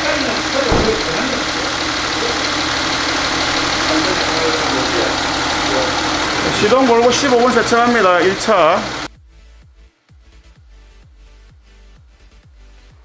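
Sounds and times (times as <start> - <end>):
car engine idling: 0.0 - 9.1.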